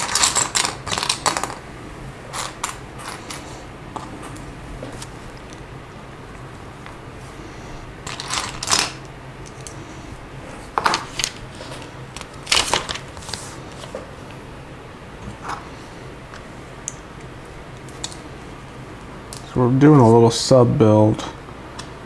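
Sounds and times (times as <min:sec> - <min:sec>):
plastic bricks clattering: 0:00.0 - 0:01.6, 0:08.1 - 0:09.0.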